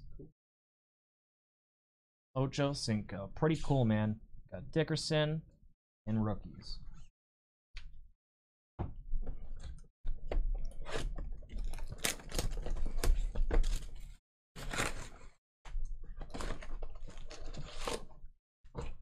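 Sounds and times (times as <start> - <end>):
cardboard tearing: 10.8 - 15.3, 16.3 - 18.1.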